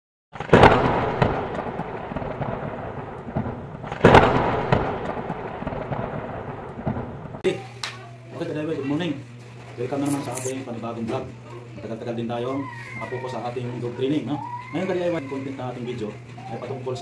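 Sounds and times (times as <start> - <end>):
thunder crack and rumble: 0.4 - 7.4
low steady room hum: 7.5 - 17.0.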